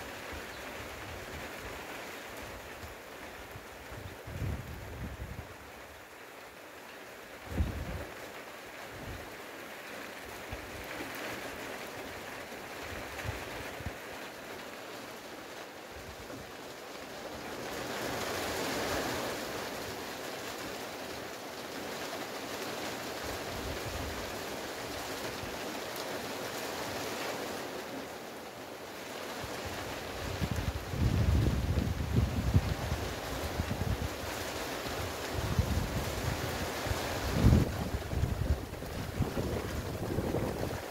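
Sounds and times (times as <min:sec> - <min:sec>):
rain sweeping over trees: 0:00.0 - 0:40.9
wind thumping microphone: 0:35.4 - 0:40.9.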